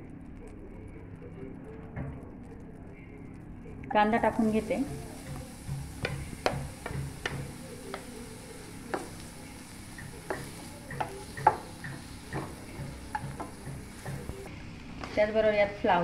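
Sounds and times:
onion sizzling in butter: 3.9s - 15.4s.

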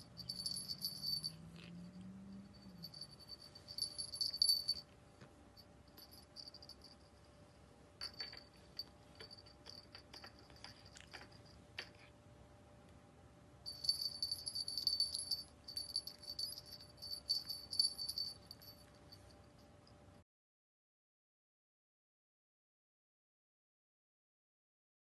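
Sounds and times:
small jingle bells tinkling: 0.0s - 5.0s, 5.6s - 12.1s, 13.7s - 20.0s.

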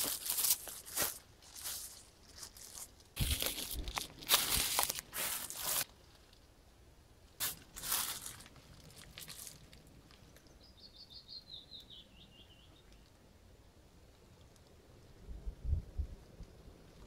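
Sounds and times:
footsteps on gritty debris: 0.0s - 5.9s, 7.4s - 10.2s
songbird trill: 10.2s - 13.1s.

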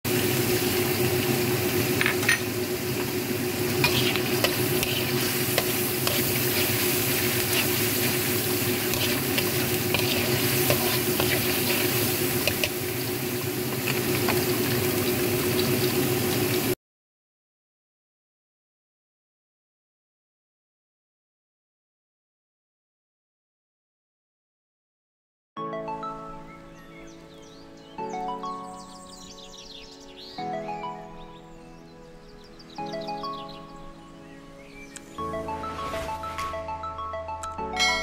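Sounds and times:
paste sizzling in oil: 0.1s - 16.8s
spatula scraping and tapping wok: 3.7s - 13.0s, 13.7s - 14.5s.

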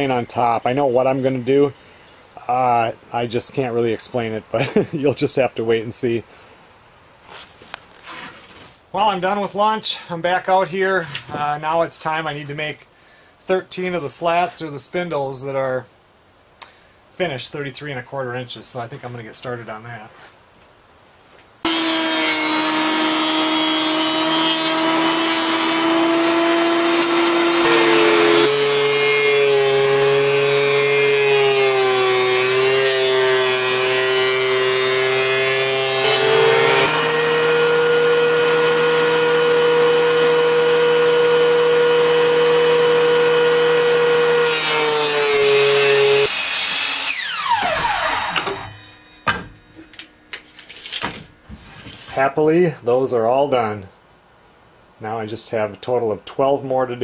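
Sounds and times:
woodworking machine motor whine: 21.7s - 48.8s.

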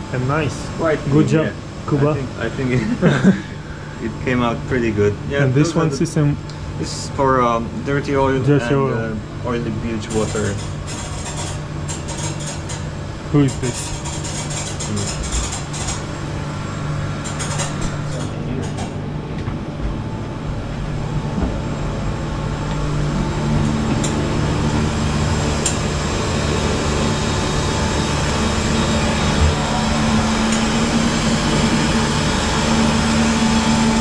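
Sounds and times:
engine room machinery drone: 0.0s - 34.0s
steady tone: 27.1s - 34.0s.

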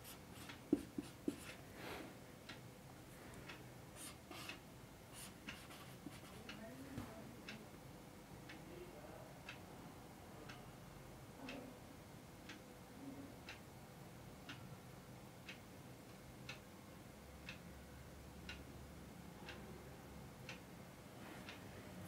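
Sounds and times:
clock ticking faintly: 0.1s - 1.6s, 2.4s - 2.7s, 3.3s - 7.8s, 9.4s - 9.7s, 12.4s - 12.7s, 13.4s - 19.7s, 20.4s - 20.8s.

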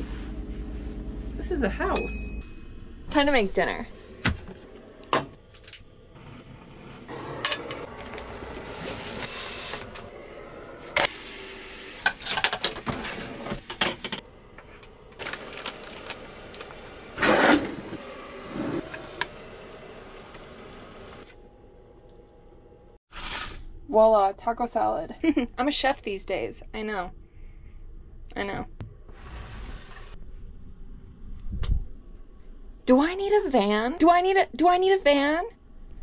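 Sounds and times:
camp stove hissing: 5.4s - 12.3s, 14.3s - 21.4s.

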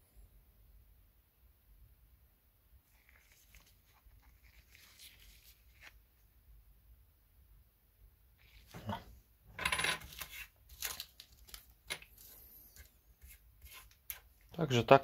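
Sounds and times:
coins clinking on wooden table: 9.6s - 10.1s.

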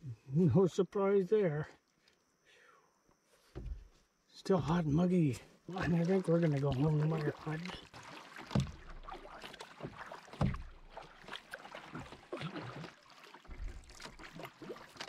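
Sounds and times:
canoe paddle strokes in water: 5.4s - 15.0s.

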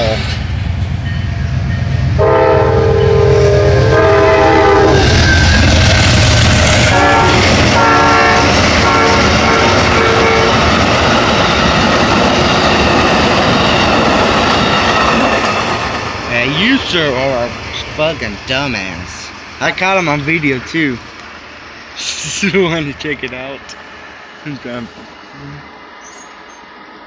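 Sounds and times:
train rumbling and clattering: 0.0s - 27.0s
train horn blasts: 2.2s - 5.6s, 6.7s - 10.7s.

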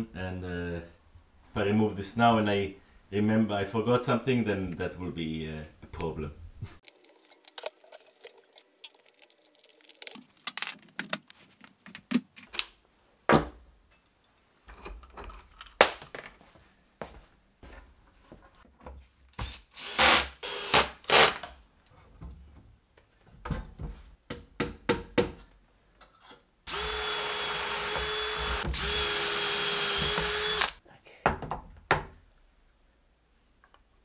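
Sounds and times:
power drill running: 19.8s - 21.3s, 26.7s - 30.8s.

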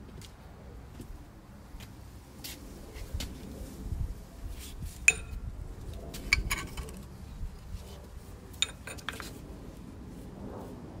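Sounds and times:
metallic clinks and taps: 5.1s - 5.4s, 8.6s - 9.3s.

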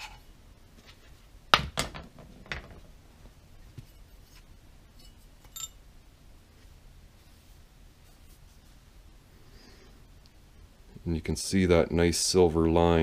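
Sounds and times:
metallic clinks and knocks: 5.0s - 5.8s.

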